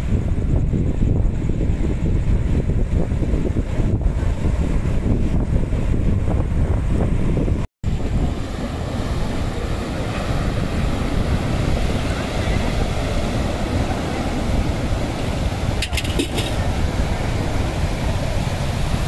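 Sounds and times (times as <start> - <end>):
wind buffeting microphone: 0.0 - 19.0
surf breaking on rocks: 7.8 - 19.0.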